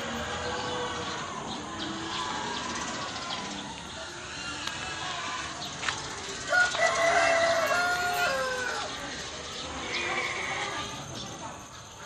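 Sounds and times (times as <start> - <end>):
rooster crowing: 6.5 - 9.0.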